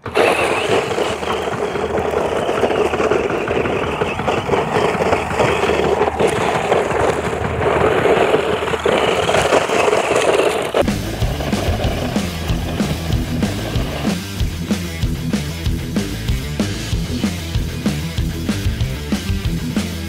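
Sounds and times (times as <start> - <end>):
stones clicking: 0.0 - 10.9
rc car tyres churning dirt: 0.0 - 15.9.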